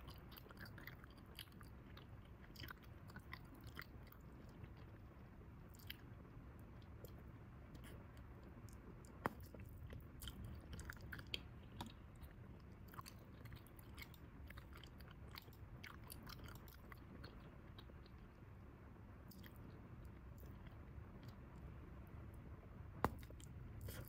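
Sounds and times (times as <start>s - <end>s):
gum chewing mouth smacks: 0.0s - 5.0s, 6.8s - 18.4s, 23.0s - 24.0s.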